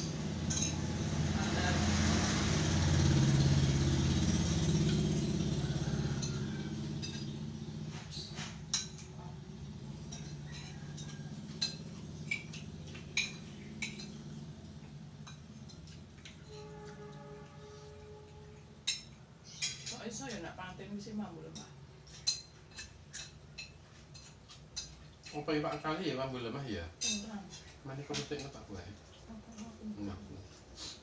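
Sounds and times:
passing vehicle engine hum: 0.0s - 19.4s
metal spoons clinking on plates: 0.0s - 20.6s, 21.5s - 26.2s, 27.0s - 28.8s.

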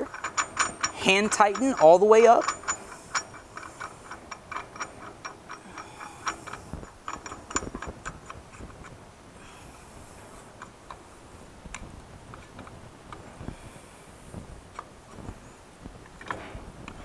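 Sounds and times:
metal collar clicking: 0.0s - 8.4s.

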